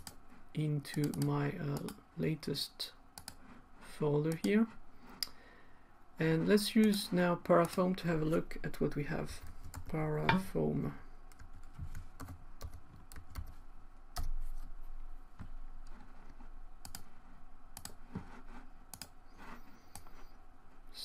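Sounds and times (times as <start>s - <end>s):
faint low hum: 0.0s - 21.0s
keyboard typing: 3.2s - 3.4s, 9.4s - 10.0s, 11.3s - 14.7s, 15.4s - 17.2s, 17.8s - 20.3s.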